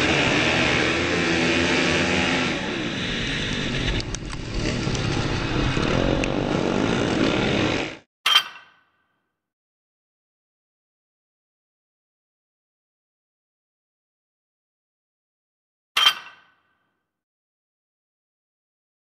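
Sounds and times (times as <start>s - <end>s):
motorcycle engine revving: 0.0s - 8.1s.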